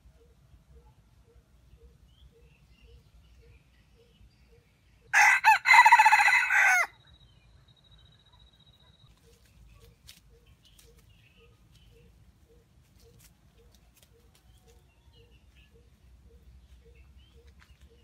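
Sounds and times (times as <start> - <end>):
faint high chirps: 6.9 - 18.0
rustles in dry leaves: 9.1 - 12.0, 12.8 - 15.0.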